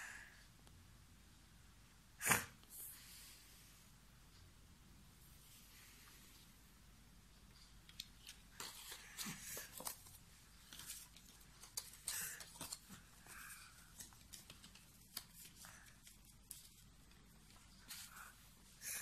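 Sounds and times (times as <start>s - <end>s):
paper rustling: 7.9s - 18.4s.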